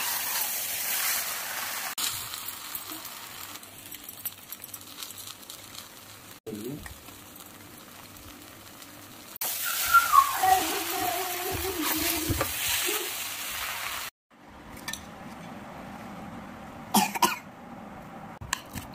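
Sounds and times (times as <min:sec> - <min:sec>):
noodles sizzling in wok: 0:00.0 - 0:14.2.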